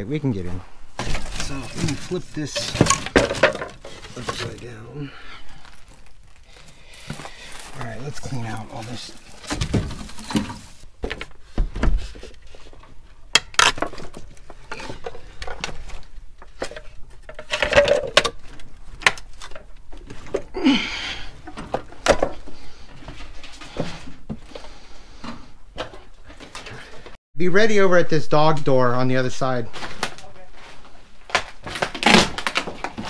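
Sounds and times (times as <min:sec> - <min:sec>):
wooden boards knocking and clattering: 0:01.0 - 0:04.6, 0:09.4 - 0:12.2, 0:13.4 - 0:20.5, 0:21.4 - 0:22.4.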